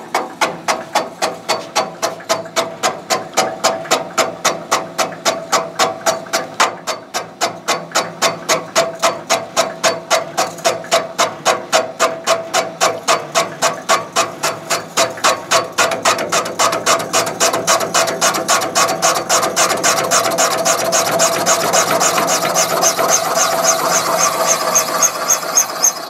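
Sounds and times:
cutter chattering on metal: 12.2s - 26.0s.

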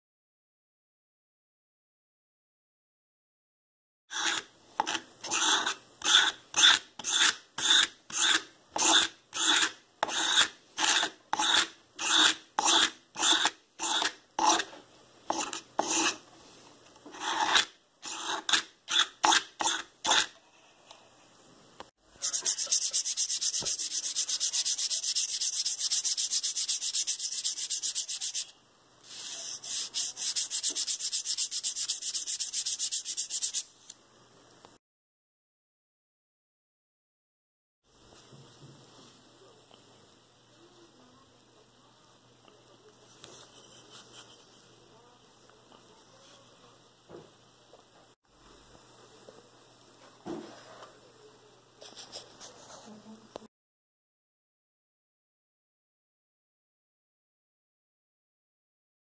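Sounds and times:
file rasping on wooden strip: 4.1s - 14.7s, 15.3s - 16.2s, 17.2s - 20.3s, 22.3s - 28.5s.

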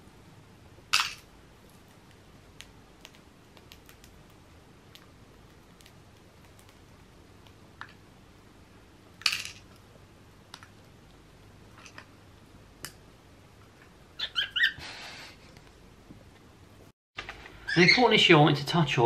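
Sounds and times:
cockatiel chirping: 14.2s - 14.8s
cockatiel squawking: 14.2s - 14.8s.

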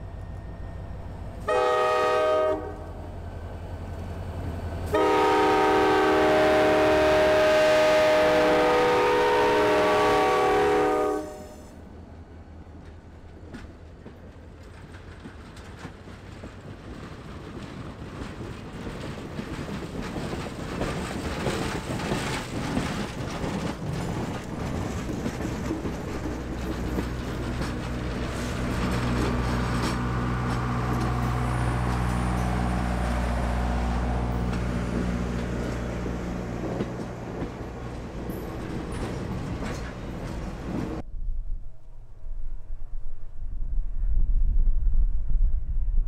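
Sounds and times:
train wheels clicking over rail joints: 12.6s - 41.0s.

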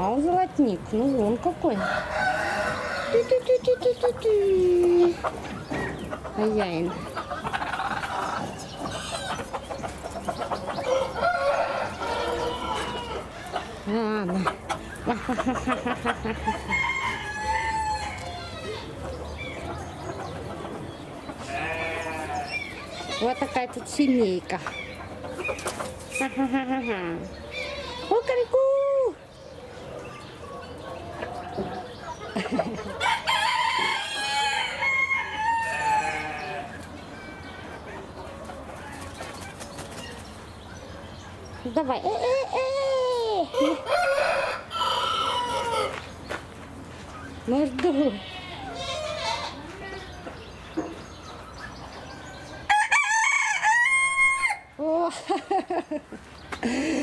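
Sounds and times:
rooster crowing: 1.7s - 3.3s, 10.9s - 13.2s, 16.7s - 18.5s, 33.0s - 37.4s, 43.6s - 46.0s, 52.7s - 54.7s.

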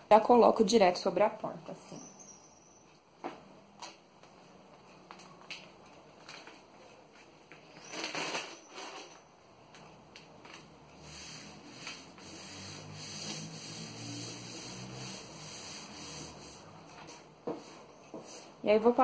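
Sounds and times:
hands rubbing across sheet: 11.0s - 18.5s.

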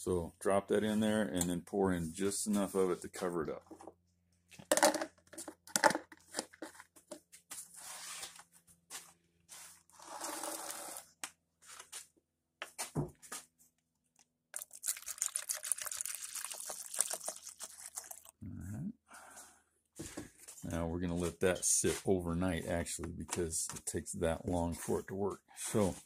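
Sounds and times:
liquid trickling and splashing: 14.5s - 18.4s.

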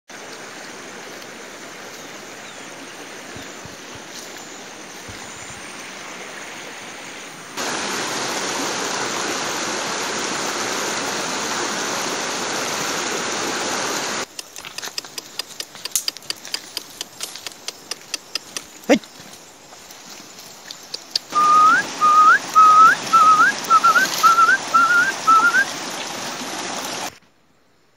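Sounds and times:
stream rushing over rocks: 0.1s - 27.2s
background hiss: 0.1s - 27.9s
sharp clicks and crackles: 14.2s - 18.7s.

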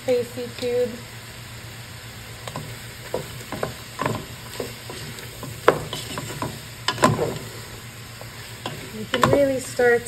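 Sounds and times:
light sizzle: 0.0s - 10.0s
wooden spatula scraping a pot: 2.5s - 9.7s.

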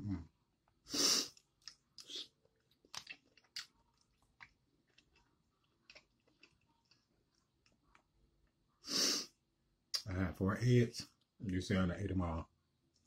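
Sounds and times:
person chewing food: 0.6s - 8.8s.

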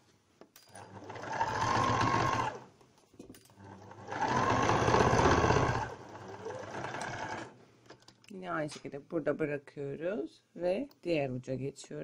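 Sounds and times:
sewing machine stitching: 0.8s - 2.6s, 3.6s - 7.5s.

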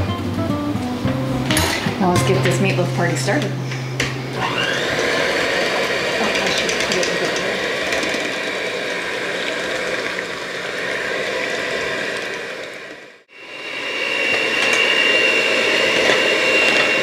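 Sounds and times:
electric hand mixer running: 1.6s - 17.0s.

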